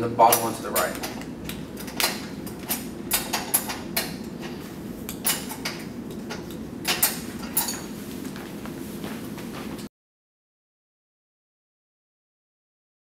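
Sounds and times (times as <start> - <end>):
steady low hum: 0.0 - 9.9
wrenches clicking on metal bolt: 0.3 - 1.2.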